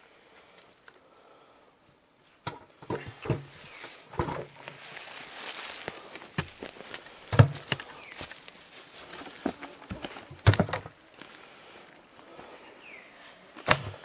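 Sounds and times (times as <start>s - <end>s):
rustling of forest litter: 3.1s - 14.0s
wooden knocks and thuds: 7.3s - 7.8s, 9.9s - 10.9s.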